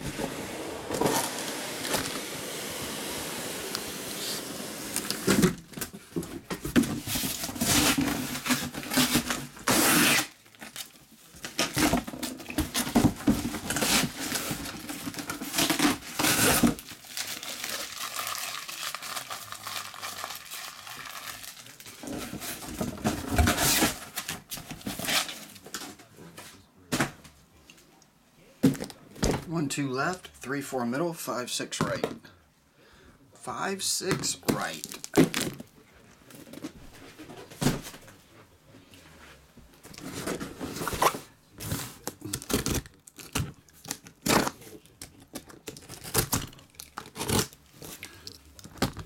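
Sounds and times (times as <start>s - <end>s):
plastic wrap and cardboard crinkling: 4.2s - 26.4s, 34.4s - 38.3s, 39.8s - 49.0s.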